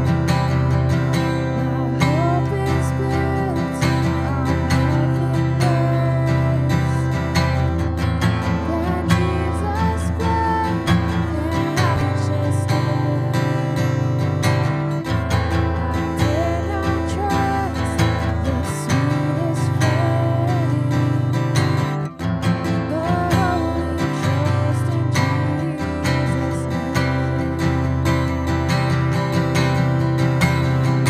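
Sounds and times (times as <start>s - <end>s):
acoustic guitar strumming: 0.0s - 31.0s
woman singing a hymn: 1.6s - 7.4s, 8.5s - 14.0s, 16.2s - 21.6s, 22.8s - 27.6s.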